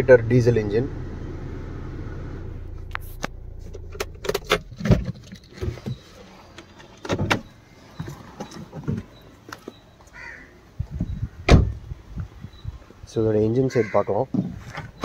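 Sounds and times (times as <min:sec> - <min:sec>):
diesel engine idling: 0:00.0 - 0:04.9
sharp clicks and knocks: 0:02.8 - 0:07.5.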